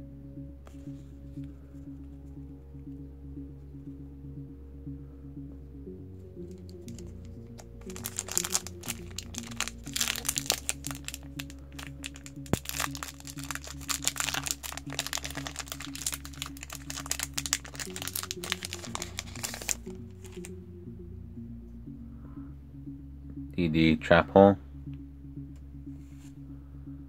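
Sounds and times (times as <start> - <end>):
quiet background music: 0.0 - 27.0
foil wrapper tearing and crinkling: 7.8 - 20.4.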